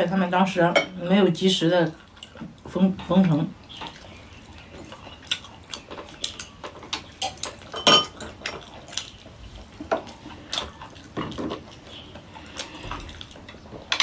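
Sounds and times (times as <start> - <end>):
chopsticks and tableware clinking: 7.2 - 8.6.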